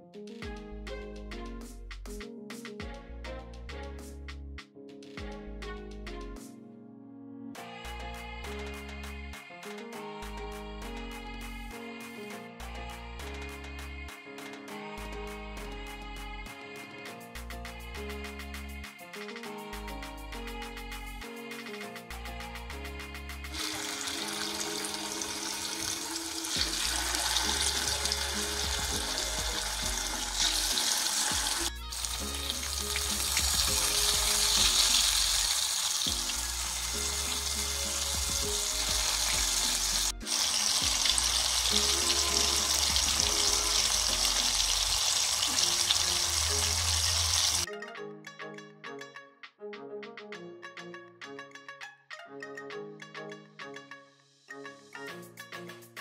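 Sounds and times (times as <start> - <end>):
background music: 0.0 - 56.0
fish sizzling in hot oil: 23.6 - 47.7.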